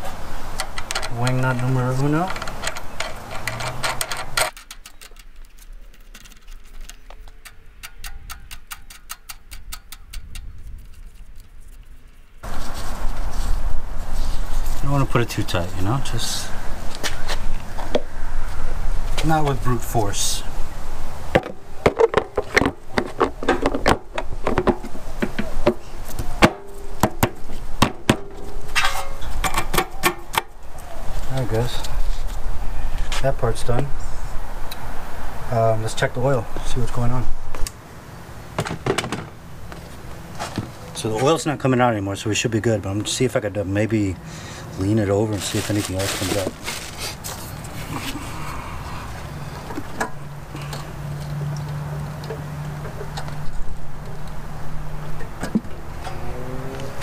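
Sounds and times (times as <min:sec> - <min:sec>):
wing nut metallic ticks: 0:00.6 - 0:11.3
engine cover knocking and clicking: 0:06.1 - 0:10.5, 0:21.4 - 0:25.8.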